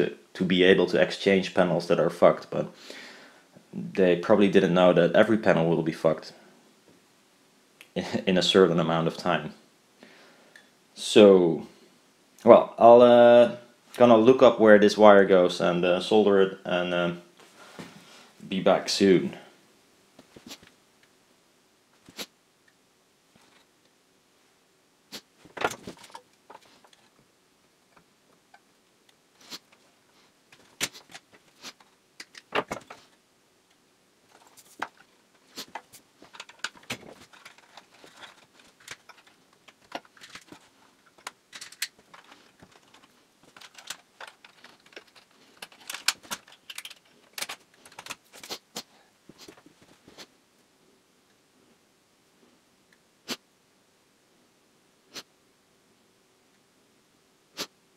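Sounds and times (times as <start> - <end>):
wires and parts rattling: 23.4 - 23.7, 25.4 - 27.2, 29.4 - 33.2, 34.2 - 50.3
man sniffing: 57.6 - 57.8.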